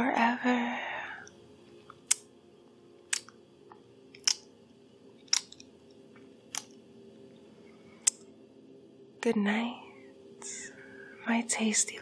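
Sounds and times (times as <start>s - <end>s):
wet mouth clicks: 3.1s - 3.4s.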